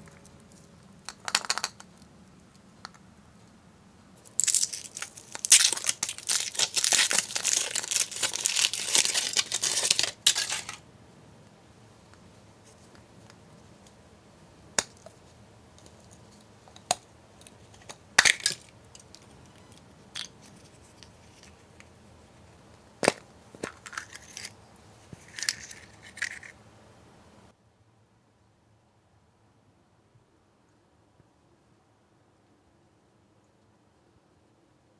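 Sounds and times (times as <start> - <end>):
chocolate shell cracking: 1.1 - 2.0, 4.2 - 10.8, 17.8 - 20.4.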